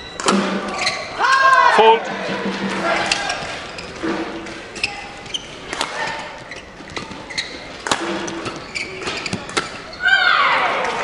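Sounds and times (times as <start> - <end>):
shoes squeaking on court: 0.0 - 1.2, 2.9 - 10.1
rackets striking shuttlecock: 0.1 - 0.8, 3.0 - 9.9
crowd murmuring: 0.7 - 7.9.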